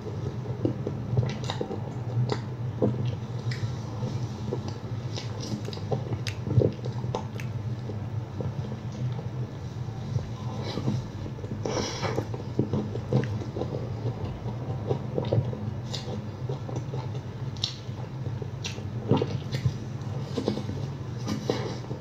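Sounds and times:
chewing soft bread: 0:00.0 - 0:22.0
steady low hum: 0:00.0 - 0:22.0
wet mouth clicks and smacks: 0:05.2 - 0:07.9, 0:16.8 - 0:17.9.

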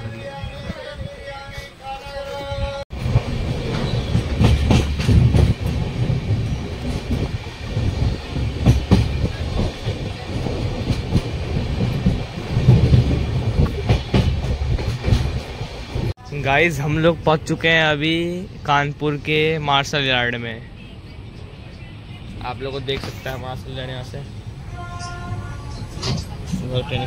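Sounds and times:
train rumbling on track: 0:00.0 - 0:27.0
wheels clacking: 0:03.0 - 0:16.1.

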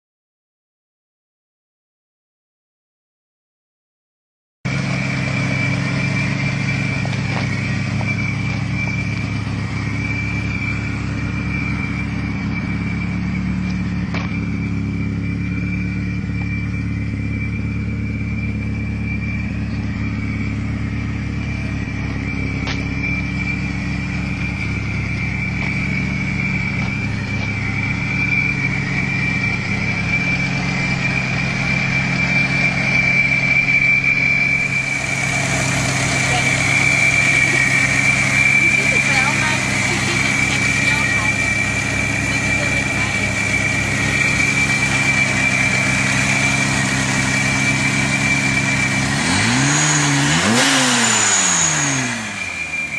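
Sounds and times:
car engine idling: 0:04.7 - 0:52.9
supercharger whine: 0:04.7 - 0:52.9.

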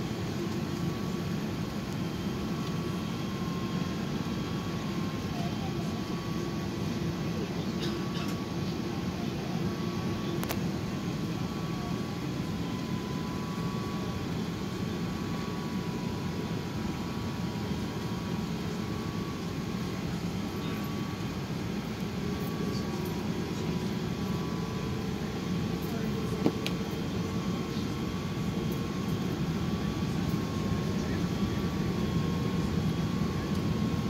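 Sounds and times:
engines and air conditioning rumble: 0:00.0 - 0:34.0
click: 0:10.4 - 0:10.6.

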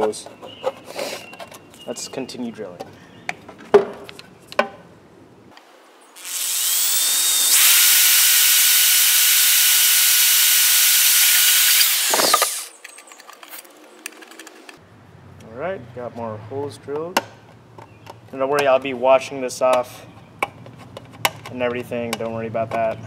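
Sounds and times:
electric drill drilling plastic: 0:06.2 - 0:12.7.

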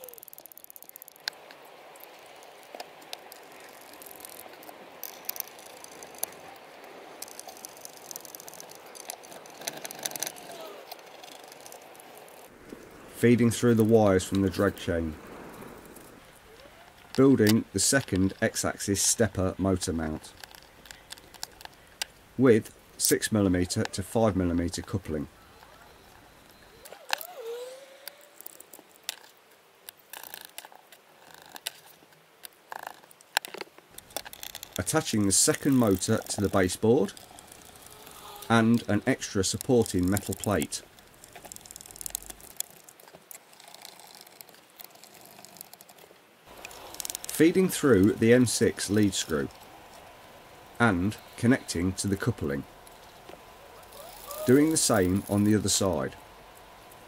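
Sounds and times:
steady hiss: 0:00.0 - 0:57.0
metal parts clicking: 0:07.2 - 0:12.5
small hardware clicking and rattling: 0:07.2 - 0:12.5, 0:32.7 - 0:38.9, 0:39.5 - 0:47.4.

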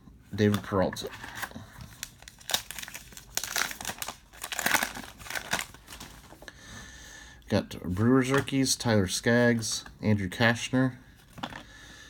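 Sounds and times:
wrapper tearing and crinkling: 0:01.2 - 0:06.3.

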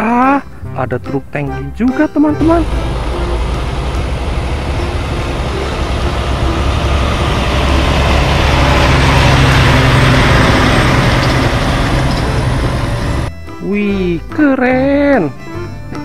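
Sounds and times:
truck engine running: 0:02.4 - 0:13.4.

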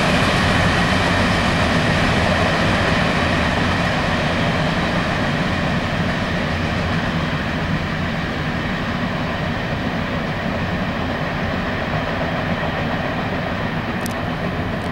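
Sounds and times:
freight train wheels rumbling: 0:00.0 - 0:14.9.

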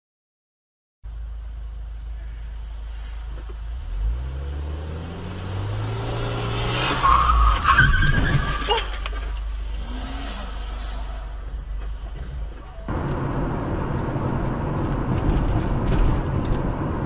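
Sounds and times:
car engine accelerating: 0:01.9 - 0:17.0
tyres screeching: 0:06.7 - 0:13.1.

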